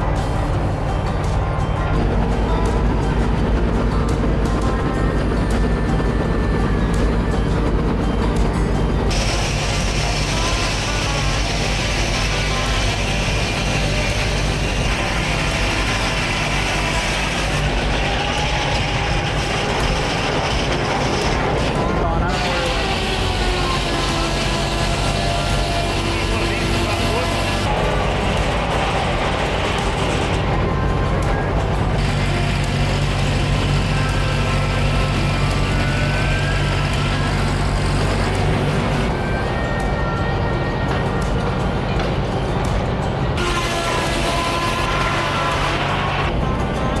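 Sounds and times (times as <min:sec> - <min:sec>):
engine droning steadily: 0:00.0 - 0:47.0
machinery humming: 0:00.0 - 0:47.0
circular saw blade cutting log: 0:09.1 - 0:40.2, 0:43.3 - 0:46.4.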